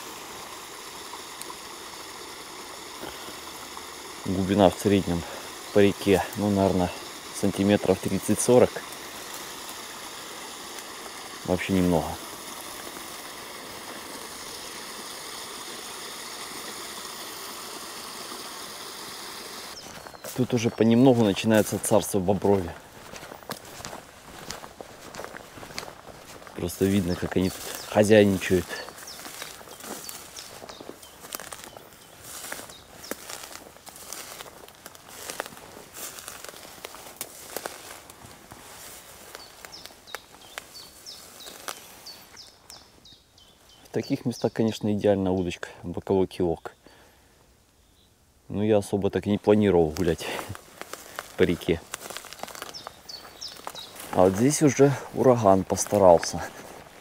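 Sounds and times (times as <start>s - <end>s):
footsteps through brush: 0.0s - 17.4s, 18.0s - 44.4s, 49.3s - 57.0s
creek water running: 0.0s - 47.2s, 48.8s - 57.0s
twigs snapping: 21.6s - 42.9s, 49.9s - 57.0s.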